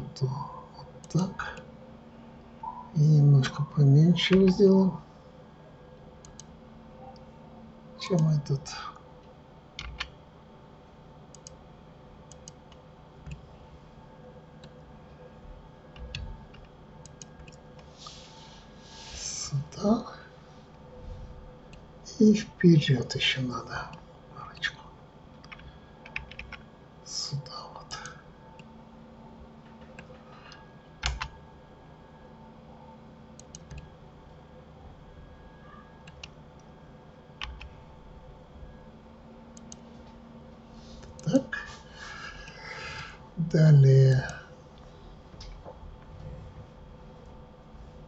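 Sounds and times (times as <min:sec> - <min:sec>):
faint steady hum: 0:00.0 - 0:48.0
keyboard and mouse clicks: 0:06.2 - 0:06.5, 0:09.8 - 0:10.1, 0:11.3 - 0:11.6, 0:12.3 - 0:13.4, 0:15.9 - 0:17.6, 0:25.4 - 0:26.6, 0:29.8 - 0:31.4, 0:33.4 - 0:33.9, 0:37.4 - 0:37.7.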